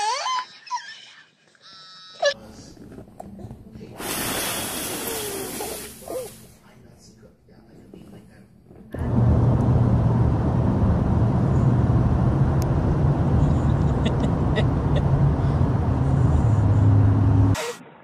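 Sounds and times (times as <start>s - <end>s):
car engine and road drone: 9.0s - 18.0s.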